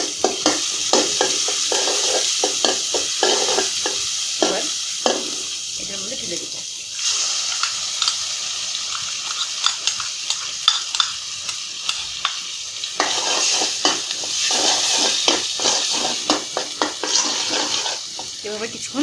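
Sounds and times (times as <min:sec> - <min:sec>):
paste sizzling in hot oil: 0:00.0 - 0:19.0
spatula scraping against pan: 0:00.2 - 0:05.4, 0:07.5 - 0:12.4, 0:13.0 - 0:18.4.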